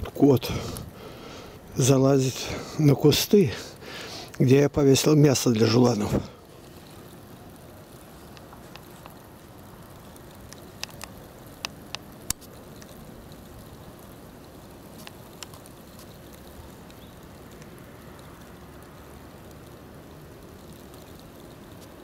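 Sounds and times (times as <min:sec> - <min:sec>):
outdoor background hiss: 0:00.0 - 0:22.0
sharp clicks: 0:10.4 - 0:13.0.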